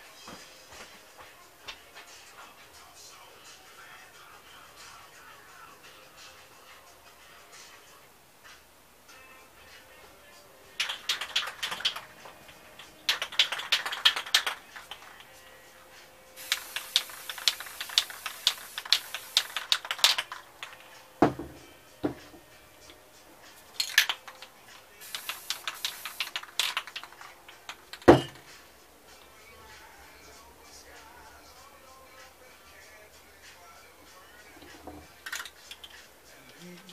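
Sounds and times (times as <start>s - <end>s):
spray can ball rattling: 10.7s - 15.4s, 16.3s - 28.7s, 34.5s - 36.1s
spray paint hissing: 10.8s - 15.4s, 16.3s - 20.8s, 23.6s - 28.3s
can knocking on table: 21.2s - 22.4s, 28.0s - 28.5s.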